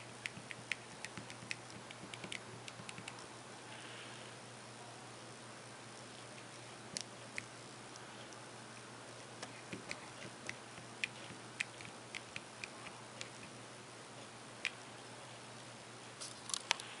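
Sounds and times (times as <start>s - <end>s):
faint steady hiss: 0.0s - 17.0s
keypad keys clicking: 0.2s - 3.2s.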